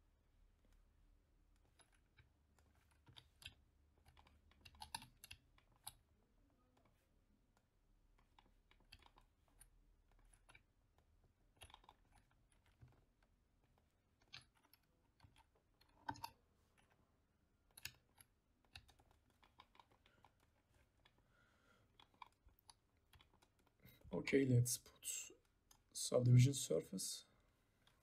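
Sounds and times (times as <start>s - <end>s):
computer keyboard and mouse clicking: 1.6s - 6.1s, 6.8s - 17.0s, 17.6s - 21.2s, 21.9s - 24.0s.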